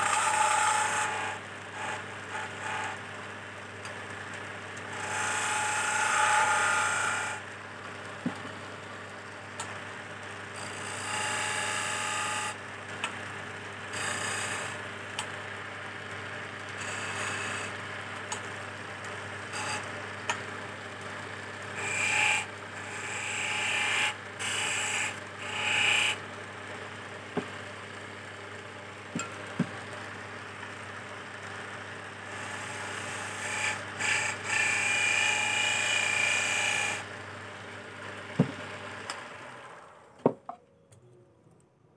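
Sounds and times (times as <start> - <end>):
wood lathe humming: 0.0 - 3.1, 4.8 - 15.6, 16.8 - 18.4, 21.8 - 26.2, 32.2 - 37.3, 38.3 - 40.1
chisel scraping spinning wood: 13.9 - 14.8.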